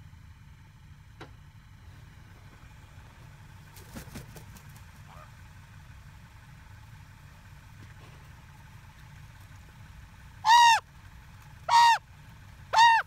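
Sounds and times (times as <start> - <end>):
raven calling: 10.4 - 10.8, 11.6 - 12.0, 12.7 - 13.0.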